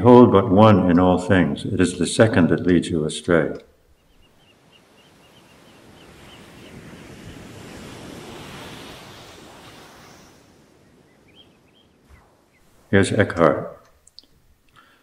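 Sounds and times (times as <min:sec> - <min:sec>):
ocean wave: 0:04.2 - 0:13.6.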